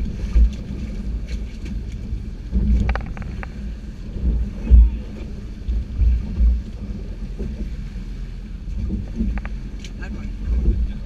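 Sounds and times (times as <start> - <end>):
boat engine hum: 0.0 - 11.0
water rushing past hull: 0.0 - 11.0
wind rumbling on microphone: 0.0 - 11.0.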